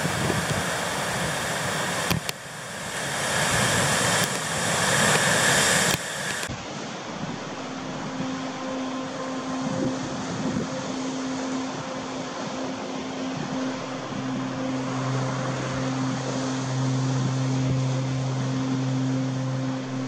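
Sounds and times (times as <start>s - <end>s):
ocean surf: 0.0s - 20.0s
wind: 0.0s - 20.0s
faint low steady tones: 7.0s - 20.0s.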